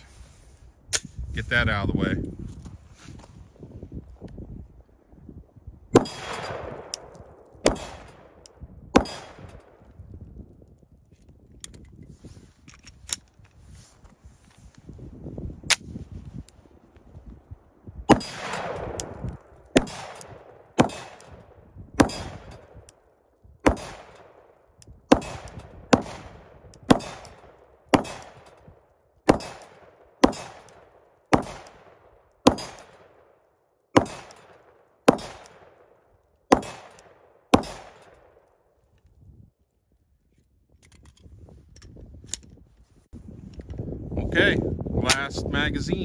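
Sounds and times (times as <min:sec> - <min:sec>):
pistol shots with echo: 0:05.9 - 0:09.8, 0:18.1 - 0:22.9, 0:23.6 - 0:28.7, 0:29.3 - 0:33.3, 0:33.9 - 0:35.9, 0:36.5 - 0:38.5.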